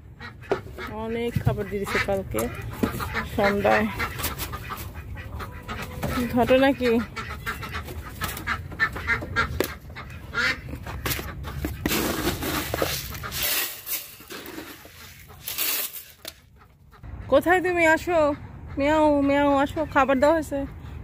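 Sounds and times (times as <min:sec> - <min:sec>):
poultry making short calls: 0:00.1 - 0:11.8.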